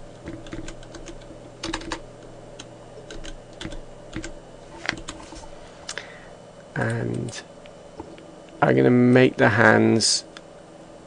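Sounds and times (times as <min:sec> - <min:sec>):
low steady hum: 0:00.0 - 0:11.0
keyboard typing: 0:00.2 - 0:02.0, 0:02.6 - 0:05.3.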